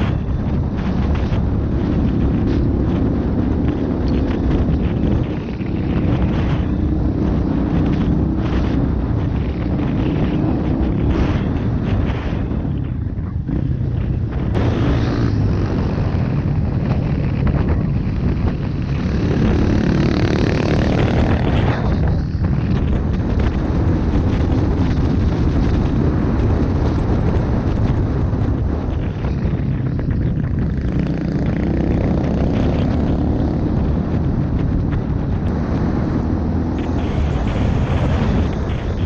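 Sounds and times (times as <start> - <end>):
off-road motorcycle engine: 0.0 - 39.0
wind noise on microphone: 0.0 - 39.0.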